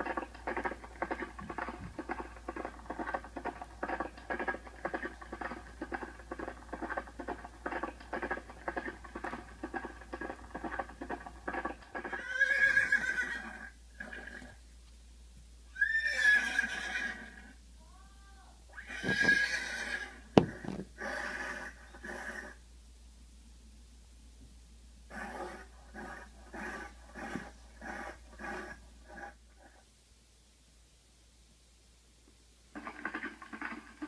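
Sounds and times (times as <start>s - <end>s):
horse whinnying: 11.6s - 14.6s, 15.7s - 17.6s, 18.7s - 22.6s
hooves clip-clopping: 19.0s - 19.4s.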